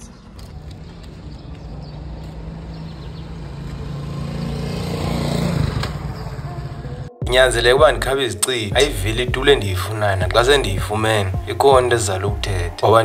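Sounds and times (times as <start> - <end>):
vehicle engine passing: 0.0 - 7.8.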